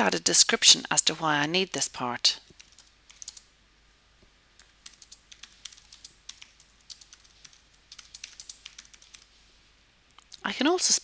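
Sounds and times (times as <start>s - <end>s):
faint keyboard typing: 2.4s - 3.5s, 4.5s - 9.4s.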